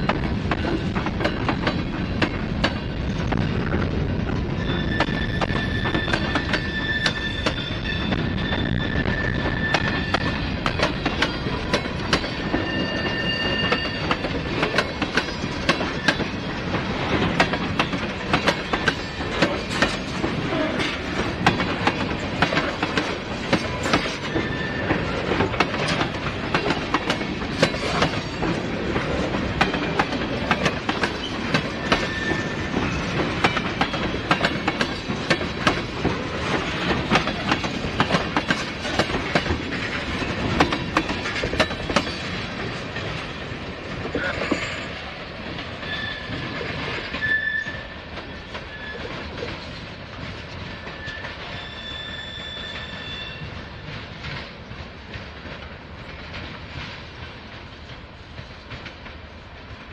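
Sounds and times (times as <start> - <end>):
train wheels clicking over rail joints: 0.0 - 59.9
wheel squeals: 4.6 - 10.5, 11.3 - 14.8, 23.7 - 26.0, 31.1 - 33.9, 45.8 - 48.0, 48.6 - 49.2, 50.6 - 53.6.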